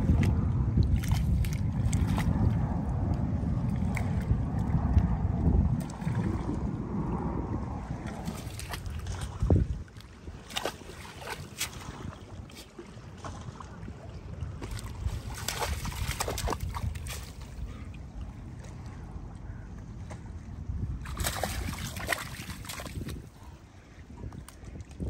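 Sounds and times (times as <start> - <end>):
water sloshing among logs: 0.0 - 2.8, 8.0 - 25.0
wind rumbling on microphone: 0.0 - 25.0.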